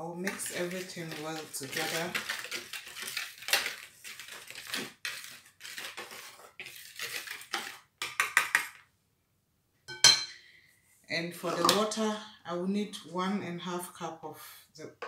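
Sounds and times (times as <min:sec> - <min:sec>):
whisk scraping plastic bowl: 0:00.2 - 0:07.9.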